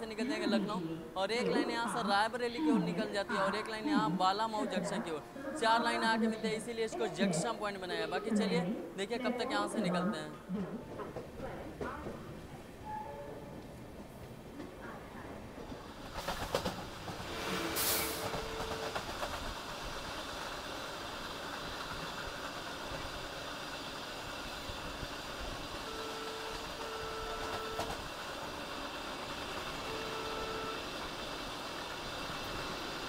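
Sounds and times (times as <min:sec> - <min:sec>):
train wheels rumbling on rail: 0:10.4 - 0:33.0.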